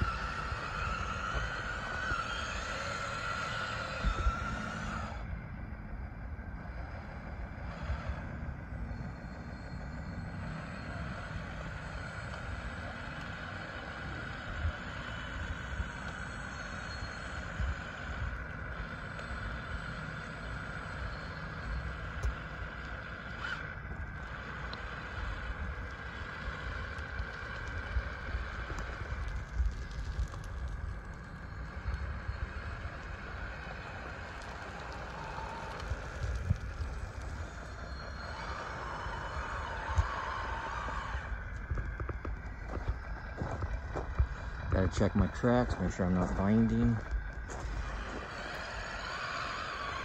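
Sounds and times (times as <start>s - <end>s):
gravel crunching and scraping: 0.0s - 5.4s, 6.4s - 50.0s
model bulldozer motor whine: 0.0s - 50.0s.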